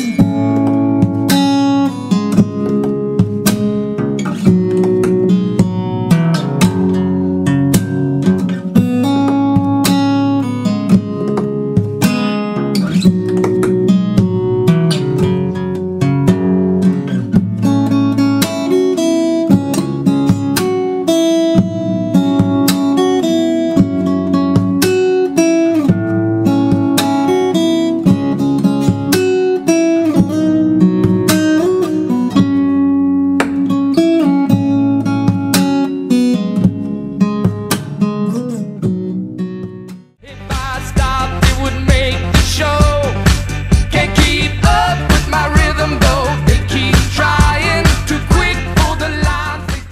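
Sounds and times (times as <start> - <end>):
acoustic guitar music: 0.0 - 49.9
bass line: 40.2 - 49.9.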